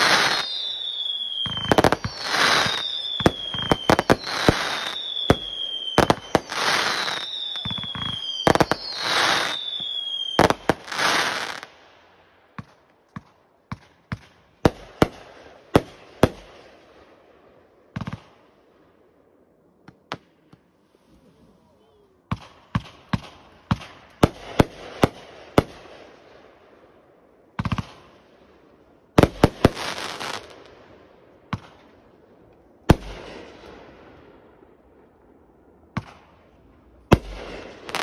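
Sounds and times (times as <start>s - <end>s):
firework whistles falling in pitch: 0.0s - 11.6s
firework bangs: 0.0s - 11.7s.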